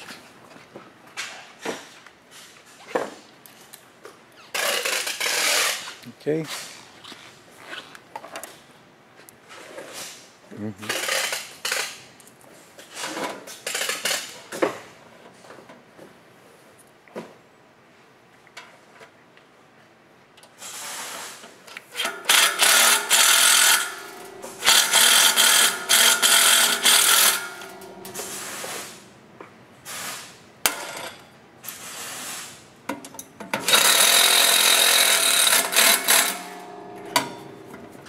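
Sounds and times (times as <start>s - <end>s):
cordless drill driving screws: 22.0s - 28.5s, 33.6s - 36.4s.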